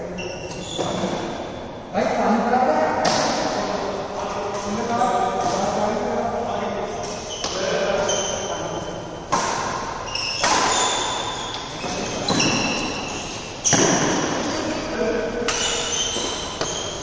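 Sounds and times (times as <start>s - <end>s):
rackets hitting shuttlecock: 3.0s - 5.8s, 7.0s - 14.5s, 15.4s - 17.0s.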